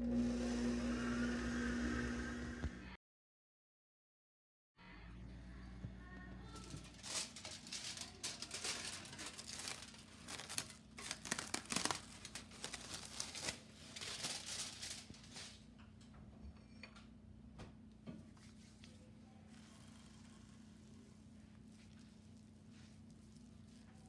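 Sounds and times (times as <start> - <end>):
plastic wrap crinkling: 6.4 - 15.6.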